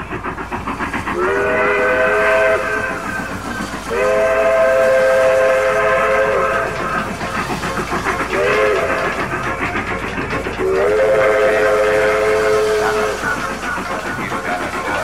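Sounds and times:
rhythmic chugging of train: 0.0 - 15.0
train whistle blasts: 1.2 - 2.9, 3.9 - 6.8, 10.6 - 13.2.

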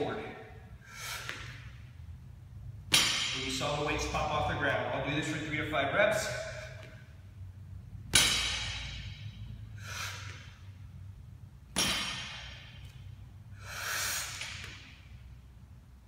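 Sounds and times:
barbell plates dropping on floor: 11.8 - 12.6
person breathing out: 13.5 - 14.4.

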